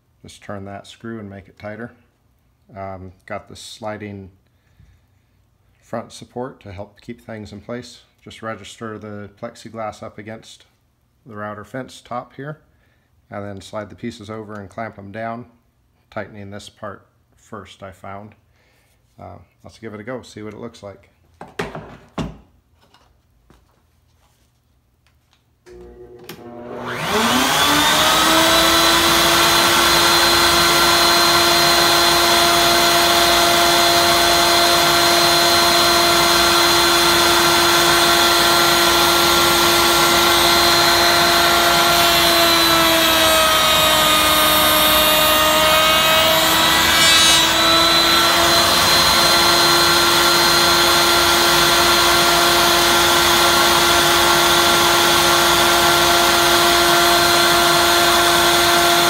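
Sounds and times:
router bit cutting wood: 25.7s - 59.0s
router high whine: 25.7s - 59.0s.

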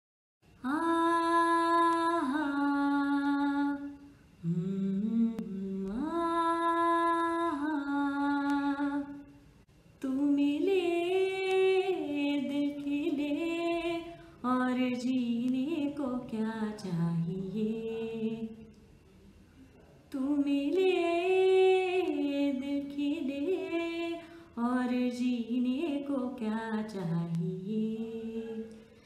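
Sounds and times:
woman humming: 4.4s - 6.0s
breaths: 24.2s - 24.6s.

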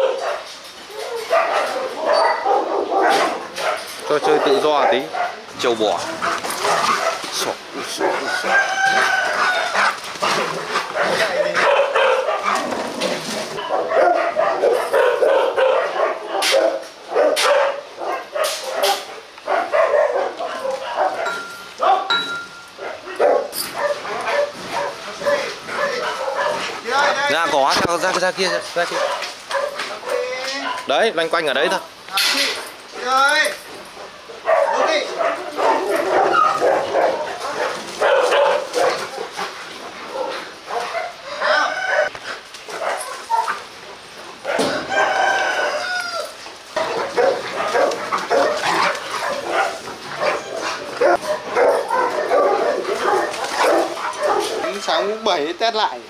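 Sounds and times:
dogs vocalising while play-fighting: 0.0s - 26.9s, 28.1s - 30.9s, 33.6s - 54.9s
short sharp dog barks: 13.6s - 17.8s.

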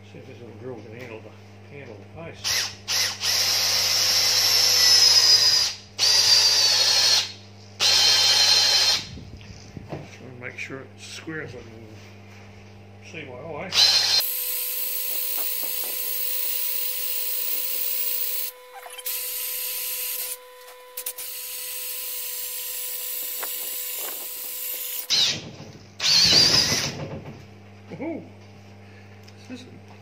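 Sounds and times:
electric drill boring into wood: 2.4s - 9.1s, 13.7s - 27.1s.

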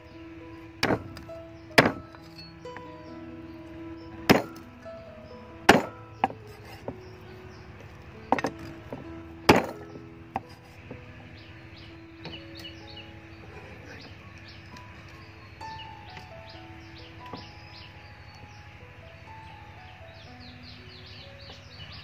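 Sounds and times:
background music: 0.0s - 22.0s
cleaver chopping ribs on board: 5.7s - 6.4s, 8.3s - 10.5s
light knocks: 17.2s - 17.6s.

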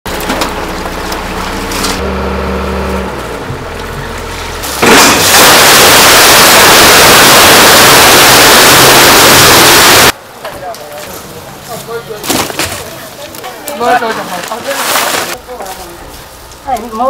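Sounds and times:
motor humming: 2.1s - 10.1s.

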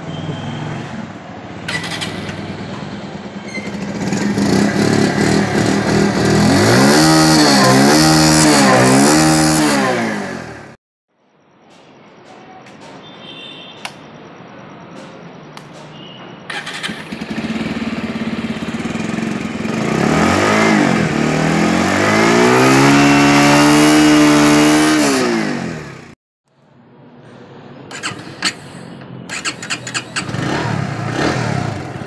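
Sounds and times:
motorcycle engine revving: 3.5s - 10.8s, 16.5s - 26.2s, 27.9s - 32.0s.

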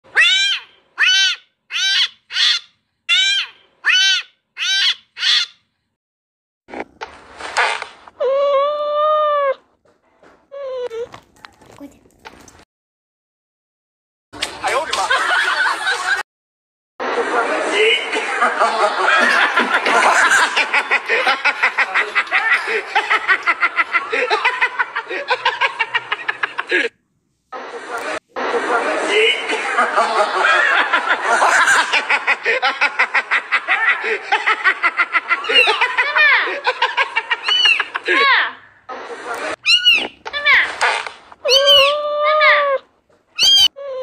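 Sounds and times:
kitten meowing: 39.6s - 40.6s, 41.4s - 42.8s, 43.4s - 43.7s.

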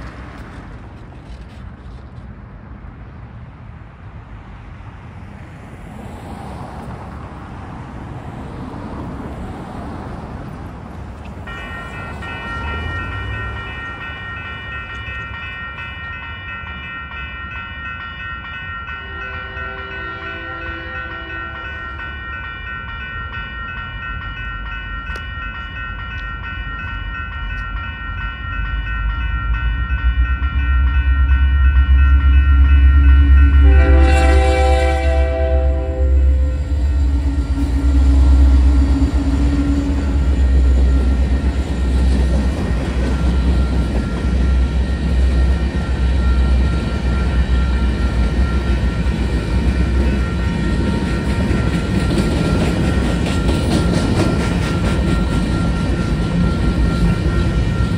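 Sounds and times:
railroad crossing bells ringing: 6.8s - 57.9s
train cars clattering: 10.8s - 57.9s
train horn blast: 19.0s - 21.7s, 33.2s - 40.3s
diesel locomotive rumble: 23.0s - 57.9s.

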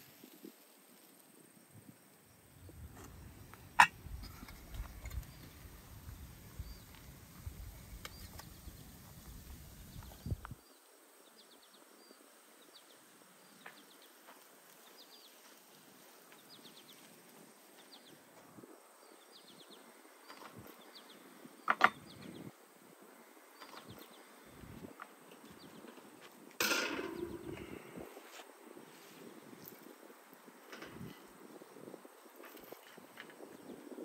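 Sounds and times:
wire basket knocking on wood: 26.6s - 27.5s.

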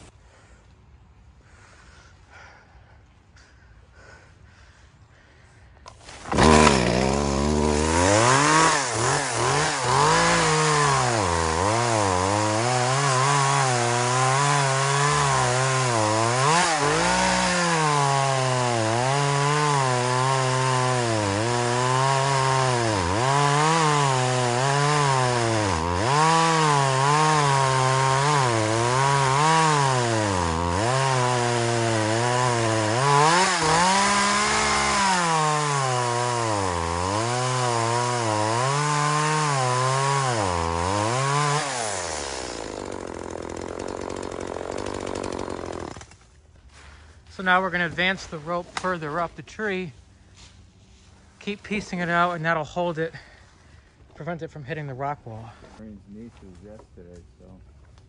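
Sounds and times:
chainsaw cutting wood: 5.8s - 49.8s.

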